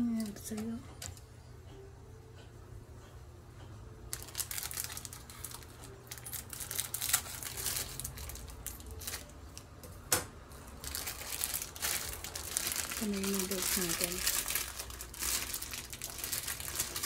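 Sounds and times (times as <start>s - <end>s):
scissors cutting plastic: 4.1s - 9.3s, 10.9s - 17.0s
plastic wrapping crinkling: 4.1s - 9.6s, 10.6s - 17.0s.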